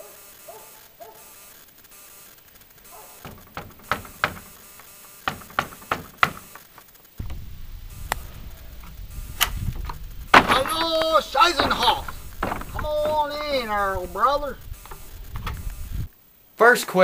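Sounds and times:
knuckles knocking on wooden door: 3.2 - 4.6, 5.3 - 6.6, 11.6 - 14.2
sharp click: 5.5 - 12.9
steady low rumble: 7.2 - 16.1.

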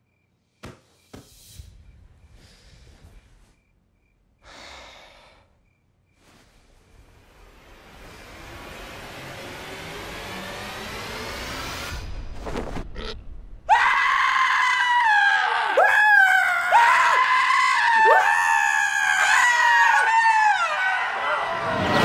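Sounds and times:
man screaming: 13.7 - 22.0.

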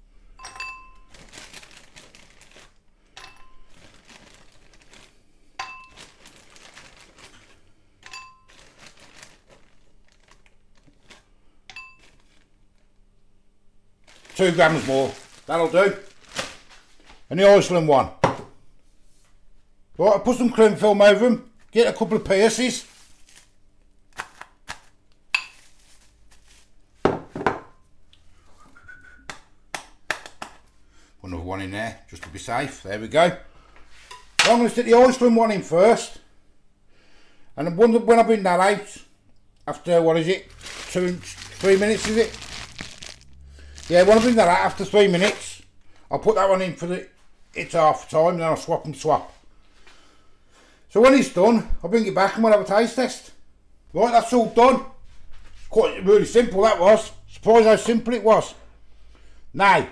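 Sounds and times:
plastic bag crinkling: 1.0 - 11.4, 12.0 - 12.9, 14.0 - 17.3, 22.3 - 23.6, 24.2 - 26.8, 40.1 - 45.7
knife jabbing through cling film: 24.1 - 25.0
ceramic bowls knocking on worktop: 27.0 - 27.8
frozen food dropping into ceramic bowl: 40.5 - 45.4.

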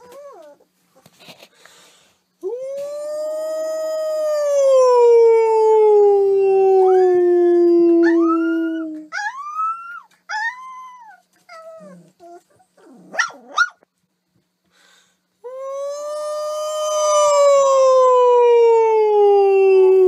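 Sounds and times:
puppy howling and yelping: 0.0 - 0.7, 4.8 - 13.8, 15.6 - 20.0.

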